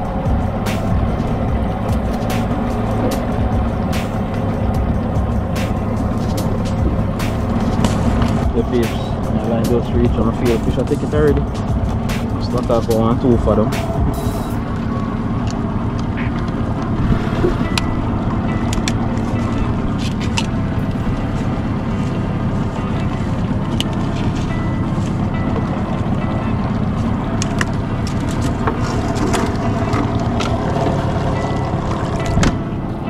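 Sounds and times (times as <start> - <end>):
boat engine running: 0.0 - 33.0.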